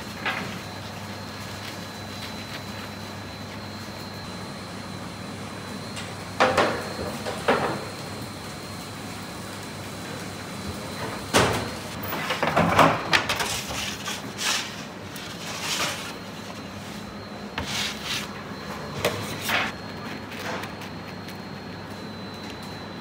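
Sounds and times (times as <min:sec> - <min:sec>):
kitchen hum: 0:00.0 - 0:23.0.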